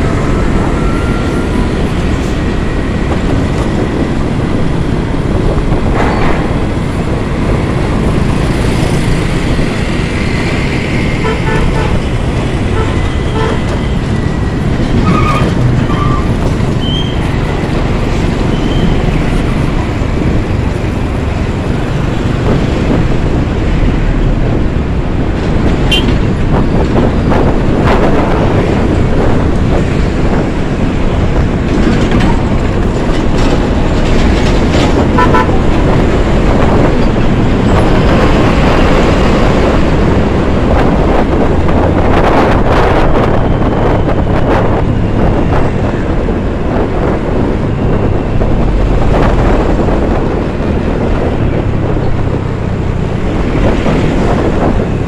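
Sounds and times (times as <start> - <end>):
wind road and engine roar: 0.0 - 55.0
horn toots: 11.2 - 12.0, 12.7 - 13.8, 25.9 - 26.2, 35.1 - 35.6.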